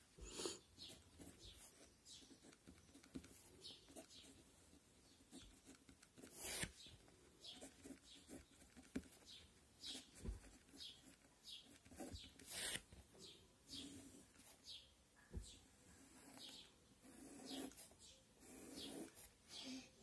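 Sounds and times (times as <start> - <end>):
pen scratching on paper: 0.3 - 6.8, 7.4 - 13.0, 16.0 - 19.4.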